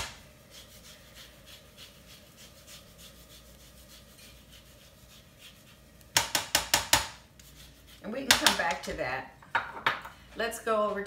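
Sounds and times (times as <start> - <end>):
orange rasping on grater: 0.4 - 6.0.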